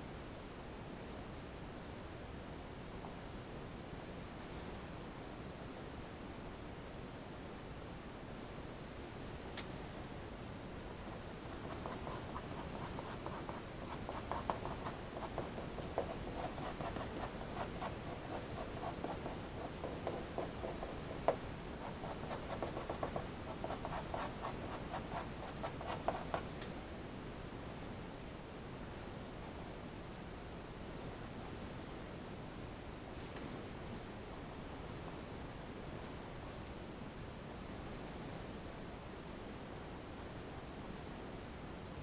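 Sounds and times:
pencil scratching on paper: 11.0s - 26.4s.

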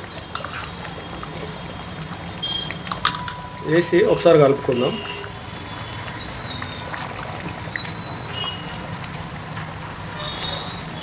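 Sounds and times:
ladle stirring thick gravy: 0.0s - 11.0s.

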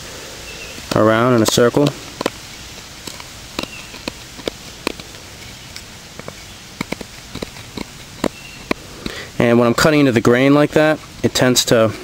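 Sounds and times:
knife carving wood clicks: 0.8s - 9.2s.

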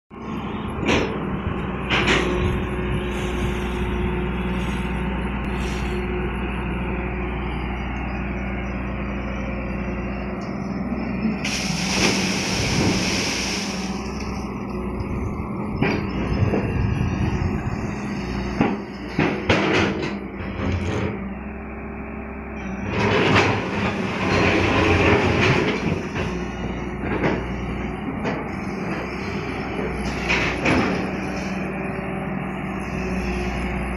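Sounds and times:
excavator diesel engine running: 0.1s - 33.9s
brief hiss: 11.4s - 14.4s.

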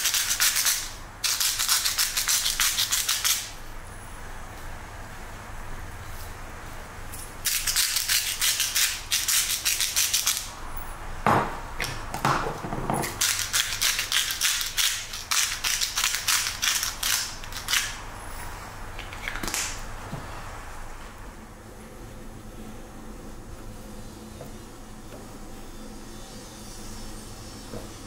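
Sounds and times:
pepper grinder grinding peppercorns: 0.0s - 3.5s, 7.5s - 10.5s, 13.0s - 18.0s
salt shaker rattling: 0.0s - 3.5s, 7.5s - 10.5s, 13.0s - 18.0s.

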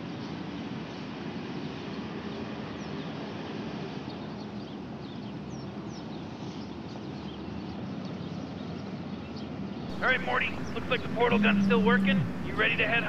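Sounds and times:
low room hum: 9.9s - 13.0s
small birds chirping: 9.9s - 13.0s.

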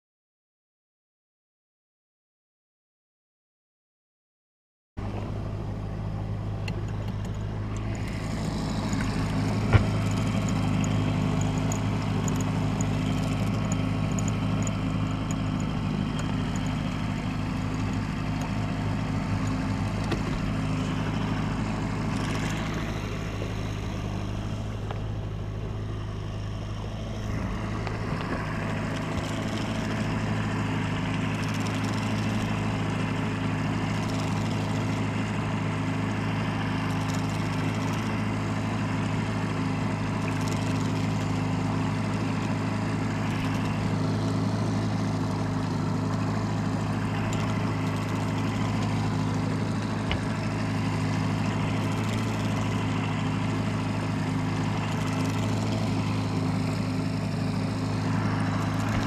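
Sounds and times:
boat motor droning: 5.0s - 59.0s.

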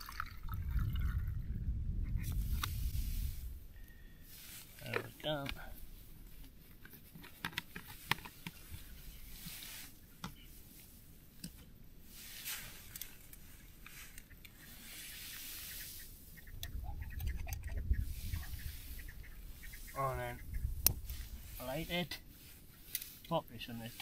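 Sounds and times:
low rumble: 0.0s - 4.2s
rustling and rubbing: 2.1s - 24.0s.

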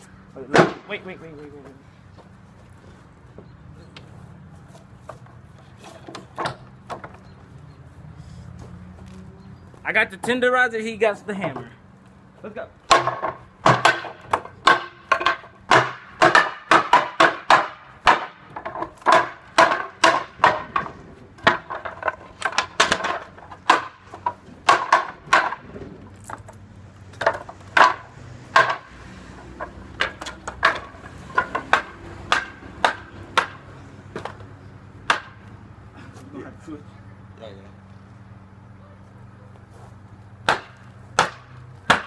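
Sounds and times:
hammer pounding on bench: 12.9s - 25.6s.

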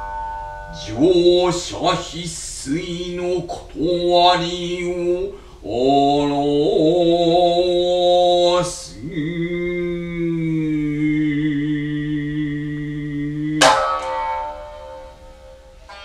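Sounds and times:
man chanting long held notes: 0.6s - 14.5s
plucked lute struck with plectrum: 13.5s - 16.0s.

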